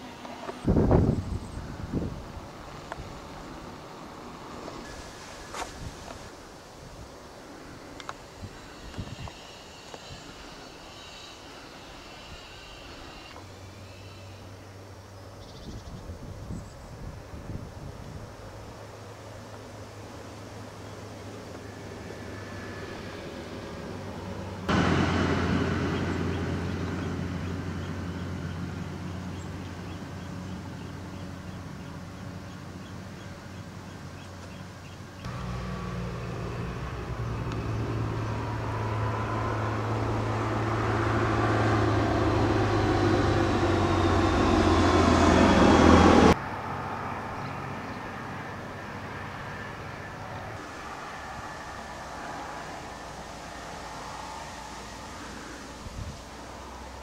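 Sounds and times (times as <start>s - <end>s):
engine hum: 17.4s - 57.0s
rushing noise: 21.7s - 29.1s, 35.3s - 46.7s.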